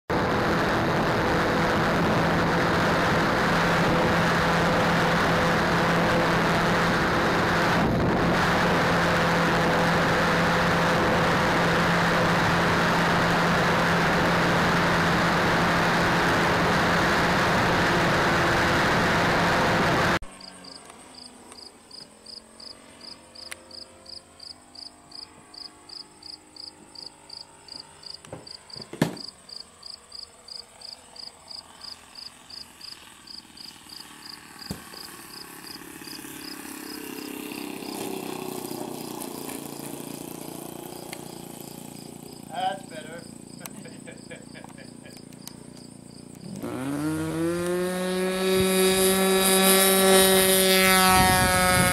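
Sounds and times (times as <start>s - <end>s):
wind rush: 0.1s - 20.2s, 51.0s - 51.9s
distant model plane engine drone: 0.1s - 51.9s
motor hum: 0.1s - 51.9s
crickets chirping: 20.3s - 37.0s, 40.9s - 46.6s.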